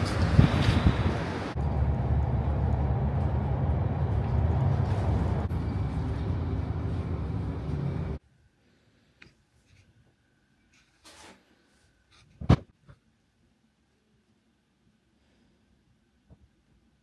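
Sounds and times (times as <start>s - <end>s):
bus engine rumble: 0.0s - 8.2s.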